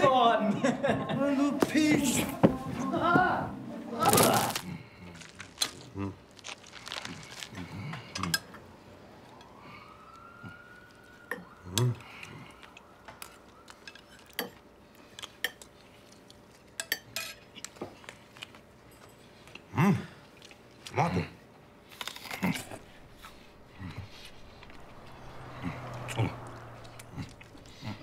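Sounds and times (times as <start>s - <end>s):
eating noises: 4.0s - 8.5s, 19.3s - 28.0s.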